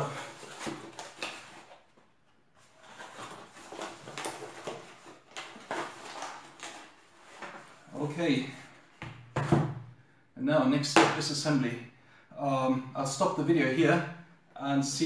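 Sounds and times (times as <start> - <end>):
cardboard and paper rustling: 0.0 - 9.6.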